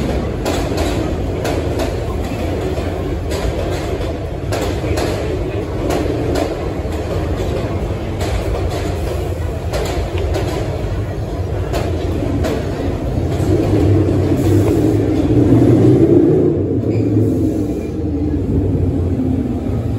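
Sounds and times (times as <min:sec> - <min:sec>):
sharp clicks of train wheels: 0:00.0 - 0:19.9
train wheels rumbling on rail: 0:00.0 - 0:19.9.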